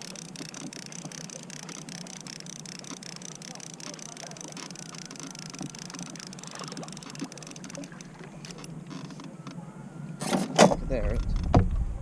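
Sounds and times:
fishing reel ticking: 0.0s - 9.6s
water gurgling against hull: 0.0s - 12.0s.

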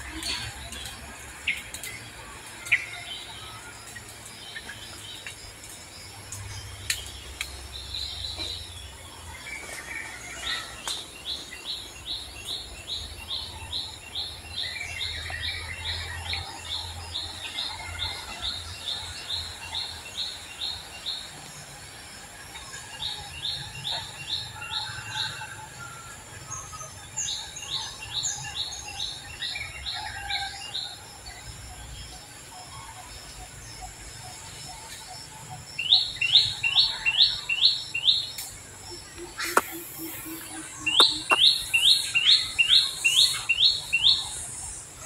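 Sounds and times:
faint bird calls: 39.0s - 43.6s.

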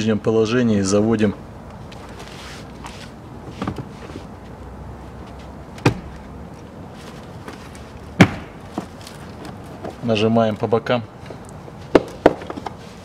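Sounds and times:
sharp plastic knocks: 5.8s - 6.2s, 8.2s - 10.0s, 11.9s - 12.8s.

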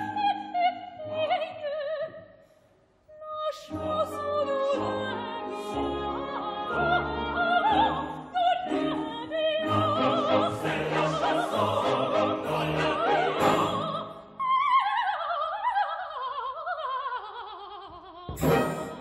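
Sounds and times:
soprano singing opera: 0.0s - 2.3s, 3.1s - 19.0s
orchestral accompaniment: 3.7s - 14.0s, 18.4s - 19.0s.

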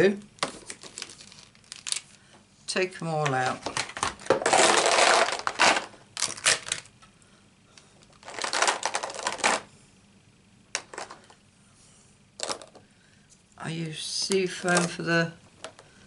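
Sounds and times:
plastic pens rattling: 3.4s - 6.9s, 8.1s - 9.7s, 12.4s - 12.8s, 14.2s - 15.1s.

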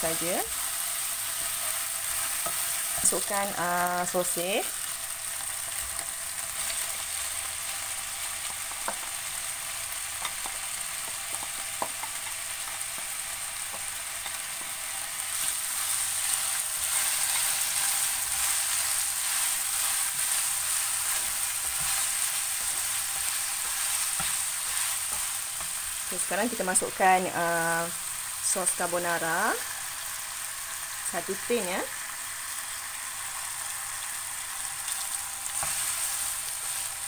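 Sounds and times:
food sizzling in a frying pan: 0.0s - 37.0s
spatula stirring a pan: 0.2s - 3.3s, 5.4s - 26.3s, 34.9s - 37.0s.

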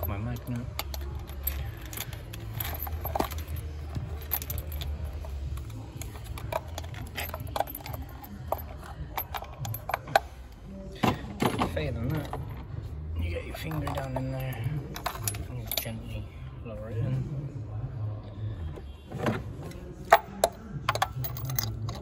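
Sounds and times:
light metallic clicks and clinks: 0.0s - 10.3s.

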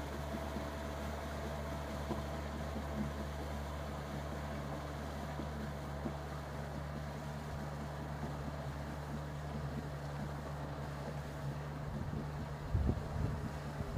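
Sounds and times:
boat motor humming: 0.0s - 13.9s
wind buffeting microphone: 11.8s - 13.9s.

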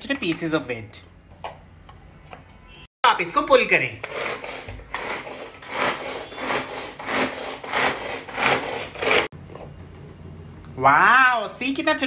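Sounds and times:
food chopper blades whirring: 4.0s - 9.3s.

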